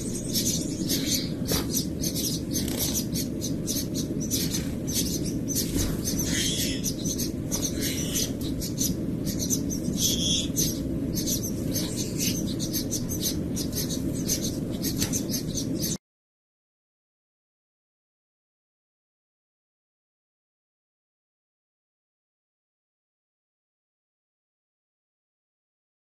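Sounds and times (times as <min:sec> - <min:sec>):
finches chirping: 0:00.0 - 0:16.0
steady low hum: 0:00.0 - 0:16.0.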